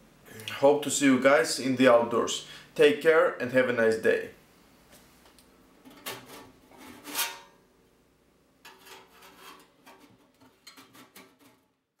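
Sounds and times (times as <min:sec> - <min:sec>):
metal scraping and rubbing: 0:05.8 - 0:07.6, 0:08.6 - 0:11.6.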